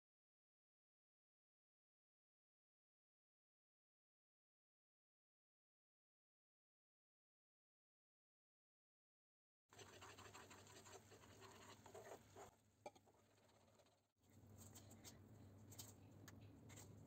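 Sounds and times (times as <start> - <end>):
spoon stirring sauce in pan: 9.8 - 13.9.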